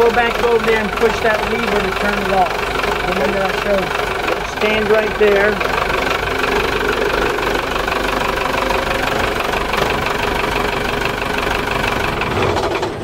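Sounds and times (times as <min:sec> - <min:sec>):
diesel engine idling with clatter: 0:00.0 - 0:13.0.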